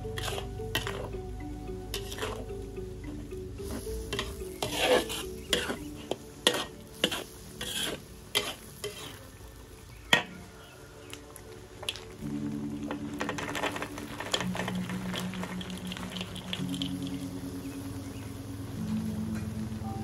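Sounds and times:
metal spatula scraping wok: 0.1 - 1.1, 1.9 - 2.5, 3.6 - 9.3.

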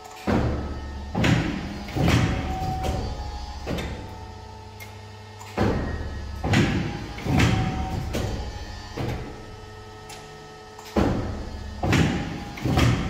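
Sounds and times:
low motor hum: 0.0 - 13.0
heavy mechanical cutter thuds: 0.2 - 4.3, 5.4 - 9.4, 10.9 - 13.0.

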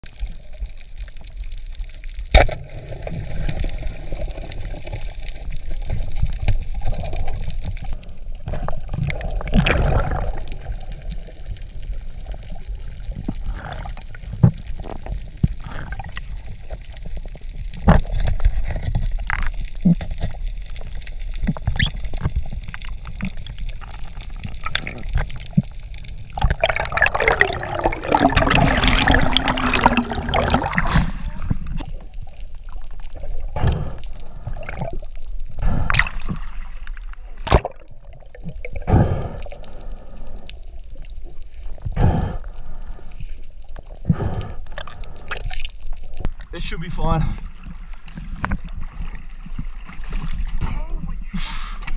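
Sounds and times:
underwater rumble and gurgle: 0.0 - 51.9
bubbling water rush: 2.4 - 19.4, 20.6 - 50.6
underwater knocks and clicks: 12.3 - 33.8, 37.4 - 39.0, 48.1 - 50.7.

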